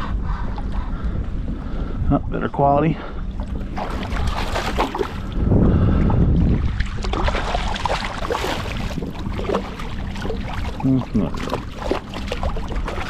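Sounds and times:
water sloshing against hull: 0.0 - 13.0
wind rumble on microphone: 0.0 - 13.0
fish splashing at water surface: 3.4 - 5.3, 6.7 - 13.0.

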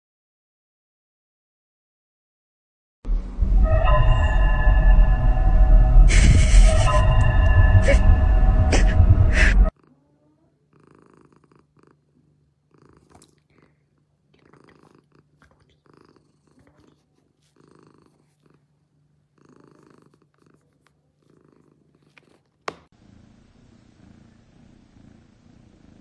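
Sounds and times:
cat purring: 9.7 - 26.0.

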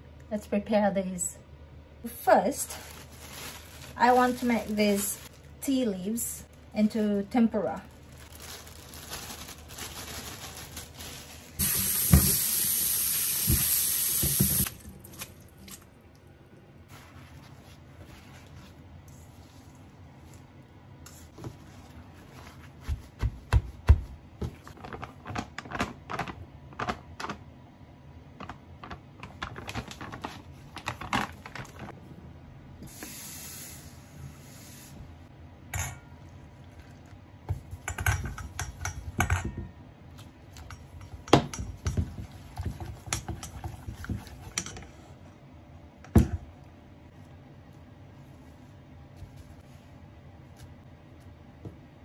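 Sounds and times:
utensils clicking on steel bowl: 37.8 - 39.6.

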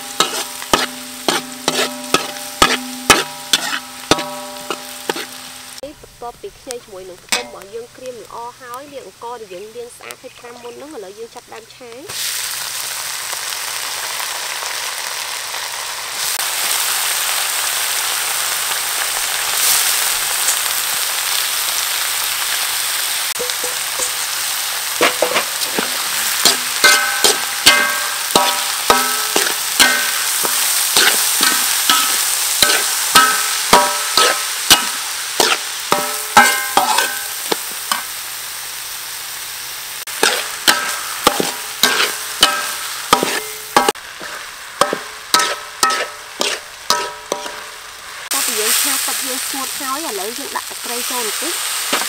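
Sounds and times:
metal spatula striking wok: 0.0 - 5.8, 7.2 - 7.7, 23.4 - 38.2, 40.1 - 49.8
rice sizzling in oil: 0.0 - 52.0.

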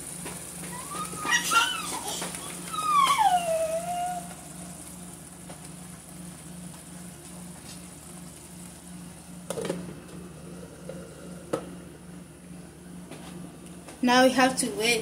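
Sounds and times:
low hum: 2.3 - 14.0.

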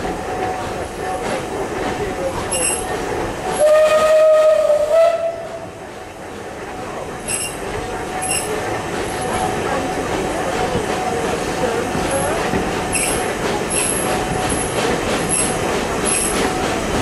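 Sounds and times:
train coaches rumbling on track: 0.0 - 17.0
high squeaks: 2.5 - 2.9, 7.2 - 7.6, 8.2 - 8.6
steam whistle: 3.6 - 5.6.

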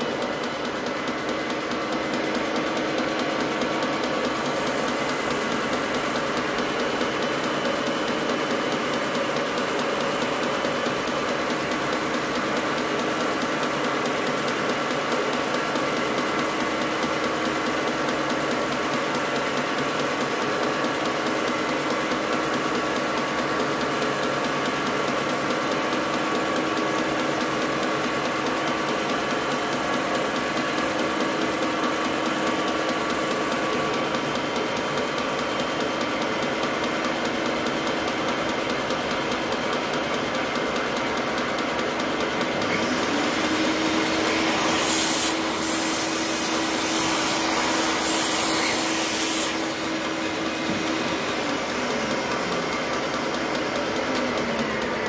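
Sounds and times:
milling machine cutting metal: 42.6 - 55.0.

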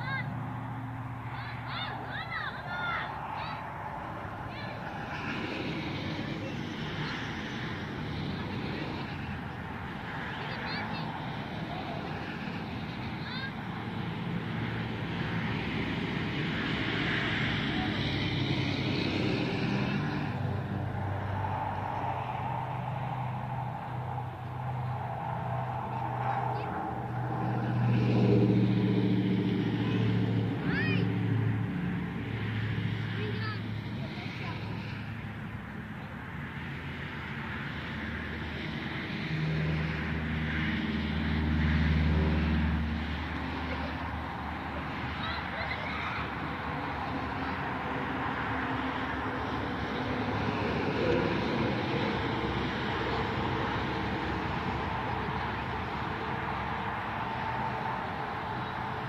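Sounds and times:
truck passing on road: 0.0 - 59.0.

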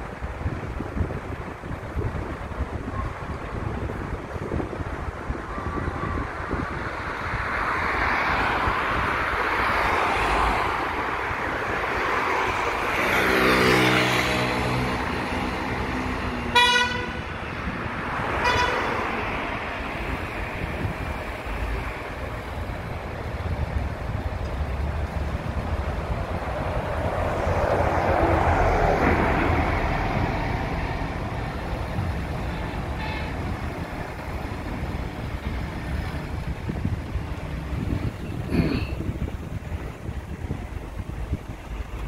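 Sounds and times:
street traffic passing: 0.0 - 42.0
vehicle horn tooting: 16.5 - 17.2, 18.4 - 18.9, 32.5 - 33.3.

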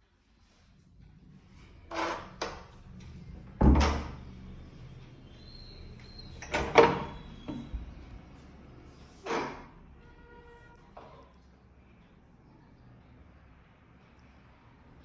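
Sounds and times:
wooden door knocks and clunks: 3.6 - 4.2.

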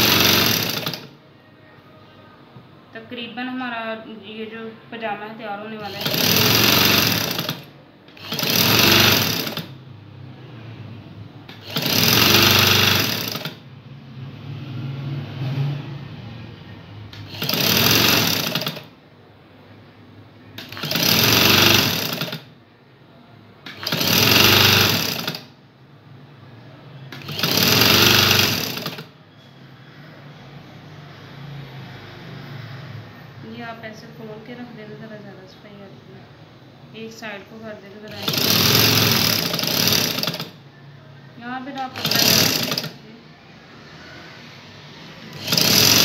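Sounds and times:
sewing machine stitching: 0.0 - 1.2, 5.8 - 9.8, 11.5 - 13.6, 17.2 - 18.9, 20.6 - 22.5, 23.6 - 25.5, 27.1 - 29.1, 38.1 - 40.6, 41.7 - 43.0, 45.3 - 46.0.

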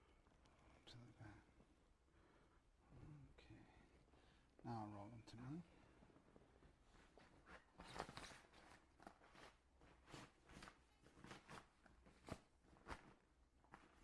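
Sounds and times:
handling rustles and light knocks: 5.9 - 14.0.

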